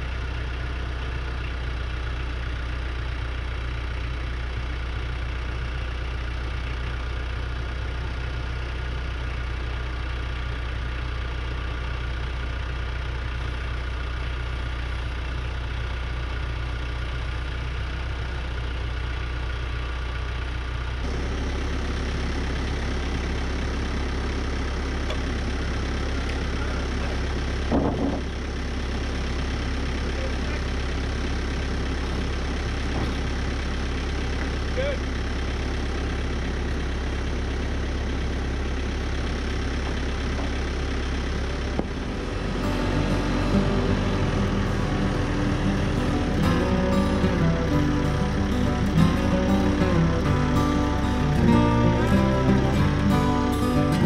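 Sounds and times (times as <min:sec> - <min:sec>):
tractor diesel engine running: 0:00.0 - 0:54.0.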